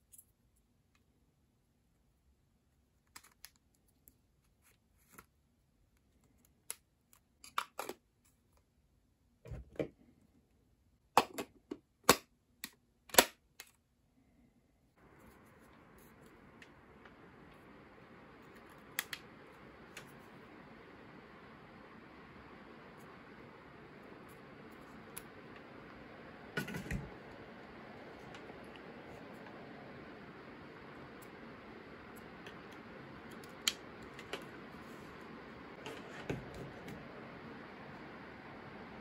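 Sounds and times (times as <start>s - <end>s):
faint steady hiss: 0.0s - 11.1s, 13.8s - 39.0s
sharp plastic snaps: 12.0s - 13.8s.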